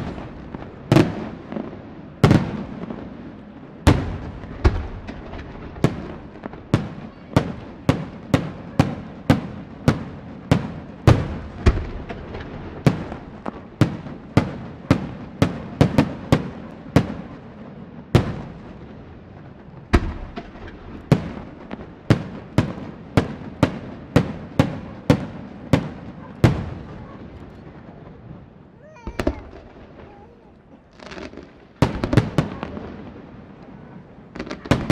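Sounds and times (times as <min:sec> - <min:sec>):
firework shells bursting: 0:28.9 - 0:32.5.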